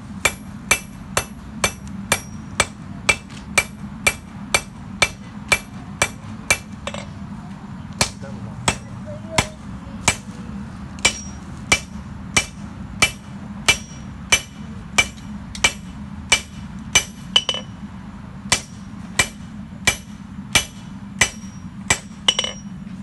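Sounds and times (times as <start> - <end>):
hammer striking metal on anvil: 0.2 - 7.2, 8.0 - 10.4, 11.0 - 17.8, 18.5 - 22.8.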